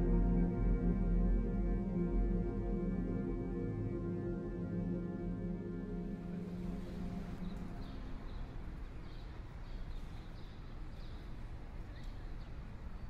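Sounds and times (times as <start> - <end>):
background music: 0.0 - 9.5
low street background noise: 6.1 - 13.0.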